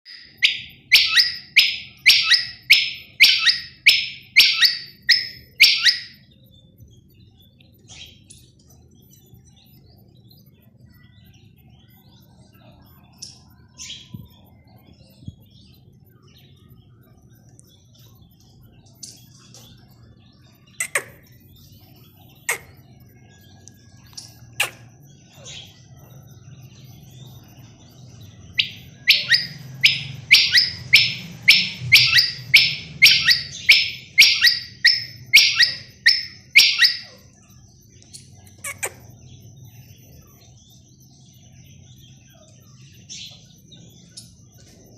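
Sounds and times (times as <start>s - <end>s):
faint chirps: 0.0s - 44.9s
quail calling: 0.1s - 6.2s, 28.6s - 37.2s.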